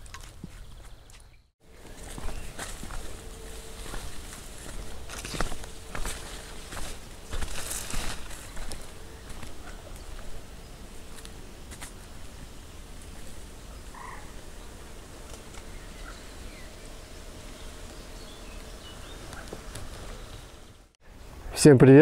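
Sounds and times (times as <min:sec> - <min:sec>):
rustling footsteps: 0:00.0 - 0:15.8
frogs croaking: 0:01.7 - 0:20.7.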